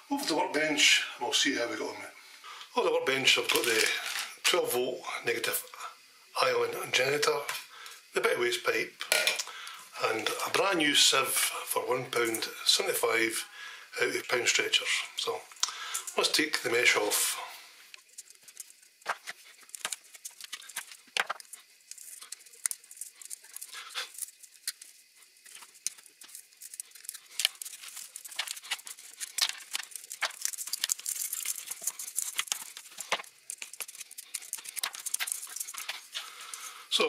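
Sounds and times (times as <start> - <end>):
wire mesh crinkling: 18.0 - 36.8.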